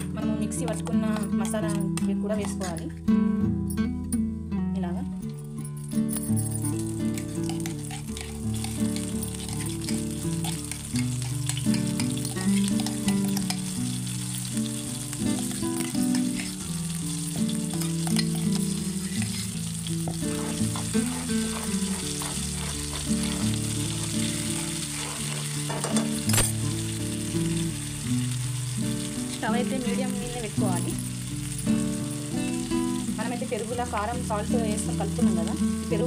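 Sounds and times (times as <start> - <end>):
paste sizzling in hot oil: 6.6 - 36.0
spoon scraping pan: 6.7 - 26.5.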